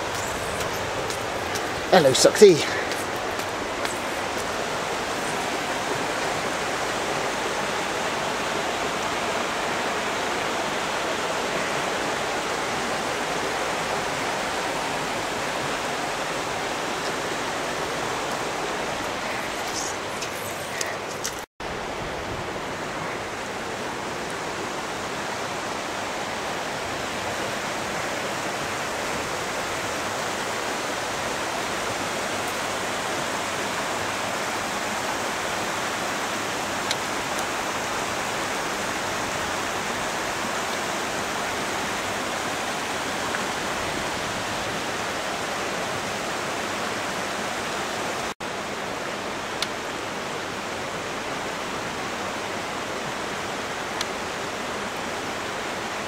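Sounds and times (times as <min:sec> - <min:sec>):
rushing floodwater: 0:00.0 - 0:56.0.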